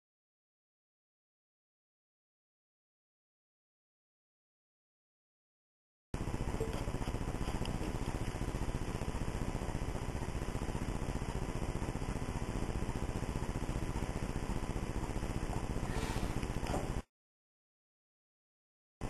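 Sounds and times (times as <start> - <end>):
faint steady hum: 6.2 - 17.1.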